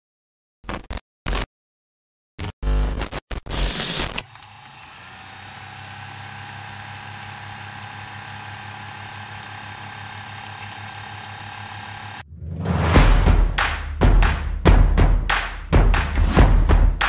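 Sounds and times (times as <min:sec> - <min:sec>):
film projector whirring: 0:04.0 - 0:12.2
projector ticking: 0:05.1 - 0:12.2.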